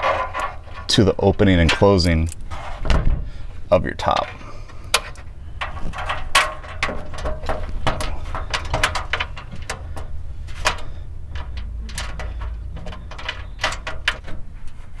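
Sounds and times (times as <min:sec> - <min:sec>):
low steady rumble: 0:00.0 - 0:15.0
small bolts clicking and knocking: 0:04.0 - 0:14.8.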